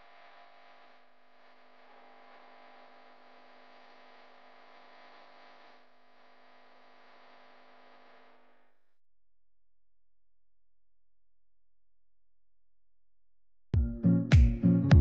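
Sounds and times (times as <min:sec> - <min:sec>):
electrical hum with hiss: 0:00.0 - 0:08.8.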